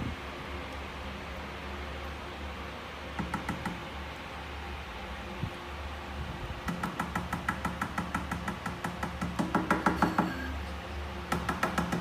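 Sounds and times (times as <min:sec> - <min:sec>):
fingers tapping on glass: 0:03.2 - 0:03.8, 0:06.7 - 0:10.5, 0:11.3 - 0:12.0.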